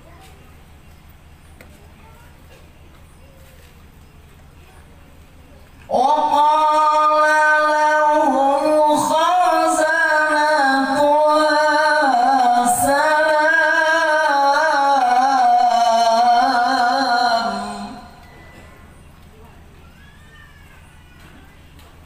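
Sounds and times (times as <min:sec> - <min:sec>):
person chanting through sound system: 0:05.9 - 0:18.2.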